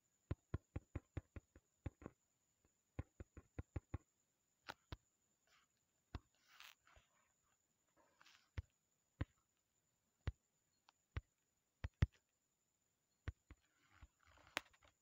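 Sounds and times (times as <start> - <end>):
fingers tapping touchscreen: 0.3 - 2.2, 3.0 - 4.1, 10.2 - 12.3, 13.2 - 14.9
faint soft rustle: 5.4 - 8.6.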